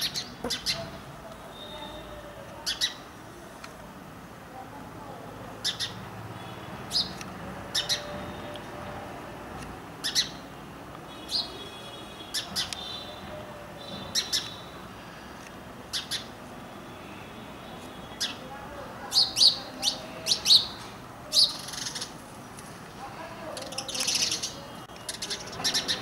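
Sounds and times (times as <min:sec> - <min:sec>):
sparrow chirping: 0:00.0 - 0:03.1, 0:05.6 - 0:08.5, 0:10.0 - 0:10.5, 0:11.1 - 0:14.9, 0:15.8 - 0:16.4, 0:17.8 - 0:22.2, 0:23.5 - 0:26.0.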